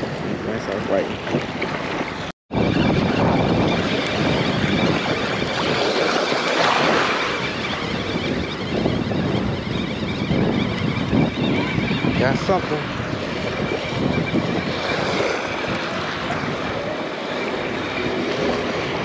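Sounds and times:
wind buffeting microphone: 0.0s - 19.0s
small waves washing onto beach: 3.8s - 7.8s, 11.0s - 19.0s.

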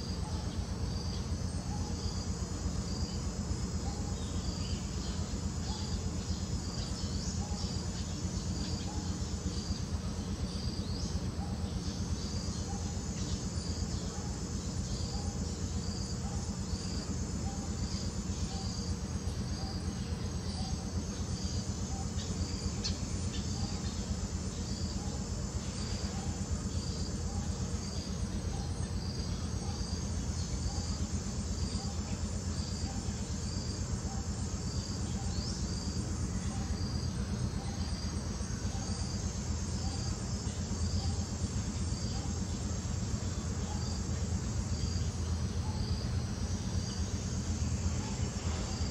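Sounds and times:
insects chirping: 0.0s - 48.9s.

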